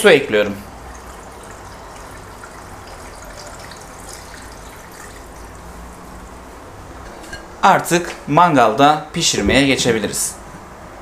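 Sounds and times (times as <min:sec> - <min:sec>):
water trickling into a pot: 0:00.2 - 0:06.6.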